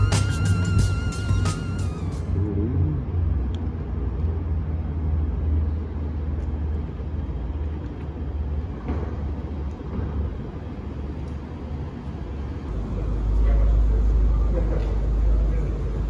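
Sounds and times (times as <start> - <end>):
background music: 0.0 - 2.5
low rumble of vehicle running: 0.0 - 16.0.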